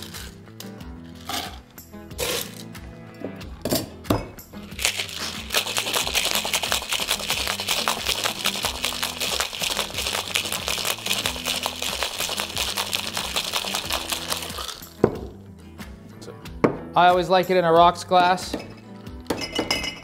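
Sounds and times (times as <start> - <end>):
ice rattling in shaker: 0.0 - 0.4, 4.7 - 15.0
cocktail shaker tins knocking: 3.7 - 15.3.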